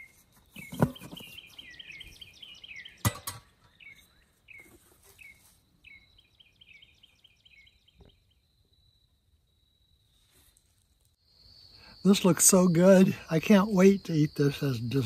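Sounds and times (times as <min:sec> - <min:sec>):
songbird chirping: 0:00.0 - 0:15.0
metal lid clanking: 0:03.0 - 0:03.6
high insect whine: 0:08.3 - 0:15.0.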